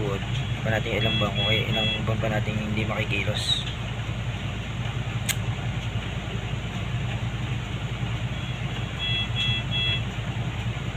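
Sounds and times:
short electronic beeps: 0.4s - 2.1s.

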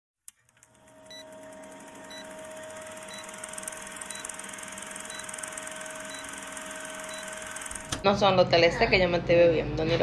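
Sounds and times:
steady hum: 0.5s - 8.1s
film projector clatter: 0.6s - 8.0s
short high beeps: 4.1s - 4.4s, 5.1s - 5.4s, 6.1s - 6.4s, 7.0s - 7.4s.

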